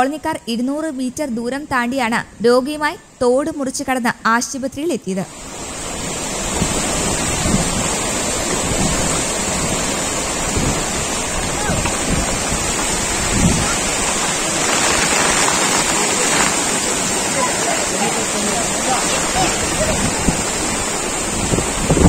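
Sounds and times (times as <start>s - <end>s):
flood stream rushing: 5.3s - 22.0s.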